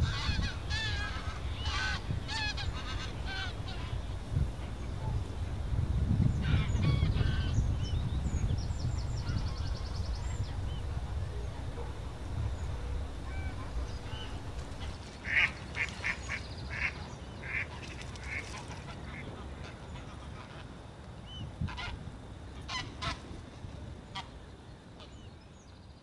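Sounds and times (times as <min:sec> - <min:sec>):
low rumble: 0:00.0 - 0:15.0
waterfowl honking: 0:00.0 - 0:15.5.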